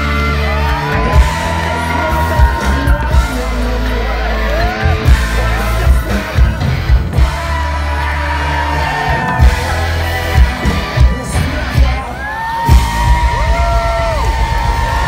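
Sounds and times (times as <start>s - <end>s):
man singing: 0.0s - 13.5s
fans shouting: 0.0s - 15.0s
live punk band music: 0.0s - 15.0s.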